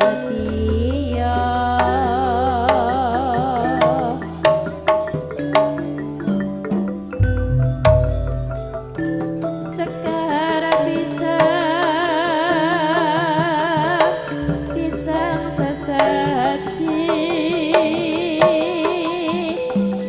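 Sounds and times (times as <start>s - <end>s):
high voice singing: 0.0s - 4.8s, 9.8s - 19.7s
metallophone tones: 0.0s - 13.0s, 14.0s - 20.0s
sharp drum strokes: 7.2s - 9.2s.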